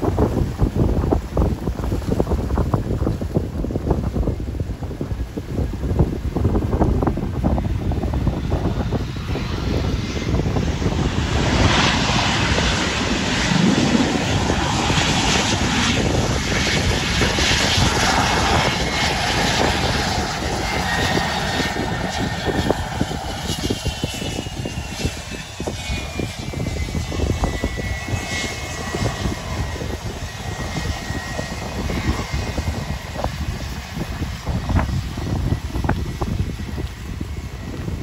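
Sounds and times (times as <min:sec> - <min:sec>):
airliner engines running: 0:00.0 - 0:38.0
wind buffeting microphone: 0:00.0 - 0:38.0.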